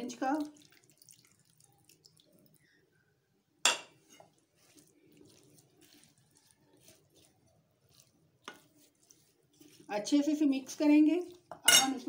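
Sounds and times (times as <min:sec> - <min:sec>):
spoon scraping a ceramic bowl: 0:11.3 - 0:12.0
spoon clinking on bowl: 0:11.5 - 0:12.0.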